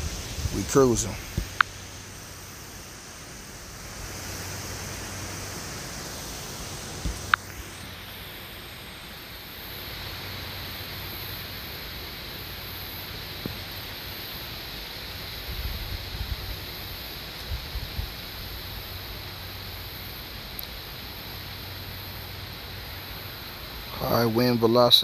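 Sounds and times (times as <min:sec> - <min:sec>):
wind blowing over microphone: 0:00.0 - 0:02.2, 0:15.4 - 0:16.8, 0:17.4 - 0:18.5
low buffeting rumbles: 0:00.0 - 0:08.0.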